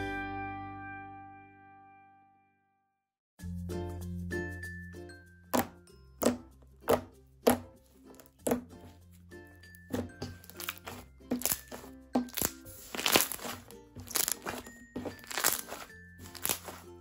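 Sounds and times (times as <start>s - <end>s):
light background music: 3.4s - 17.0s
slime squelching and popping: 10.0s - 16.9s.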